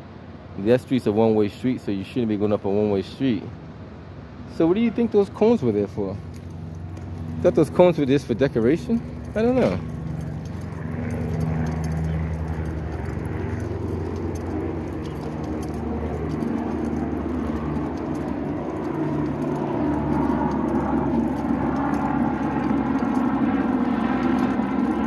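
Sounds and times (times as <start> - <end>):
low engine hum: 2.6 - 25.0
rough loud engine: 6.2 - 25.0.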